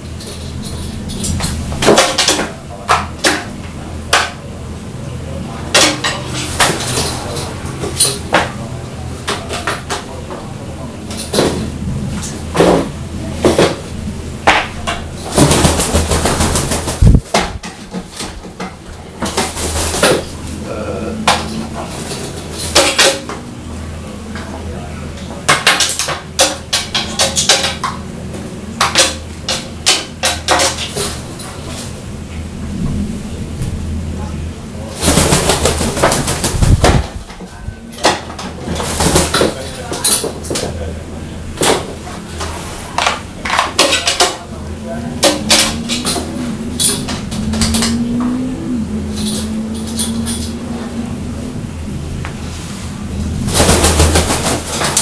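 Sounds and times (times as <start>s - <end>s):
steady low hum: 0.0s - 25.5s, 27.8s - 55.0s
low hum: 44.5s - 53.8s.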